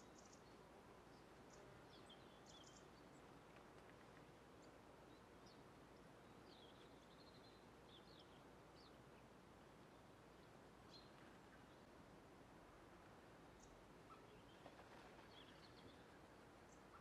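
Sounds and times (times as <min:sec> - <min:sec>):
small birds chirping: 0:00.0 - 0:03.3
faint outdoor hiss: 0:00.0 - 0:17.0.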